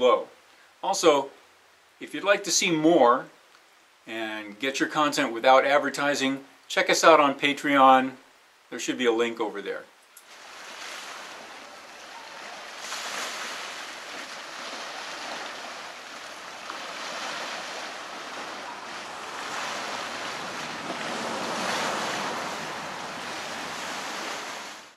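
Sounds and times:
waves washing onto rocky shore: 10.3 - 24.9
wind blowing over microphone: 10.5 - 24.9.

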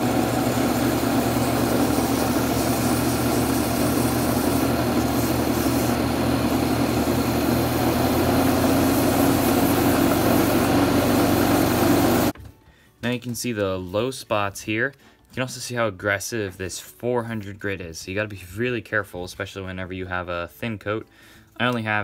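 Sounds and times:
lathe motor running: 0.0 - 12.4
sandpaper rubbing on wood: 1.4 - 6.6.

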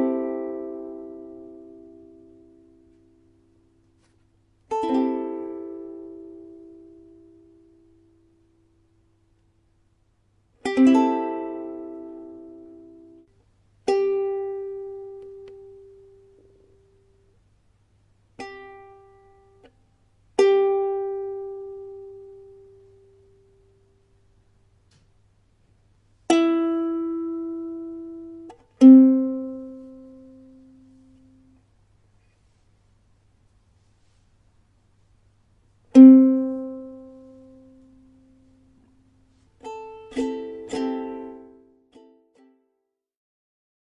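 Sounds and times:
ukulele plucked: 0.0 - 8.8, 10.6 - 17.3, 18.4 - 19.8, 20.4 - 24.0, 26.3 - 31.6, 35.9 - 42.7.

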